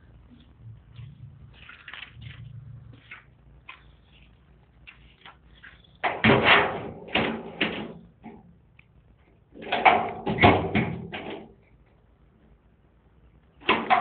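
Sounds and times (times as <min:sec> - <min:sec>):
door banging and rattling: 0:06.0 - 0:08.5, 0:09.6 - 0:11.6, 0:13.6 - 0:14.0.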